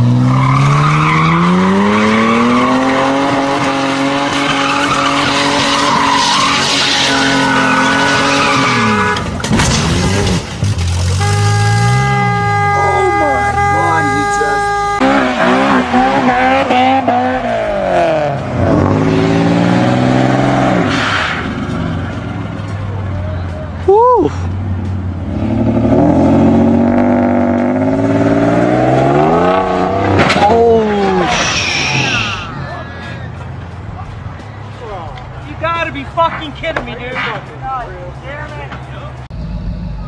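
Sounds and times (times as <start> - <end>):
car engine revving: 0.0 - 23.2, 24.4 - 32.6
tyres squealing: 30.4 - 33.5.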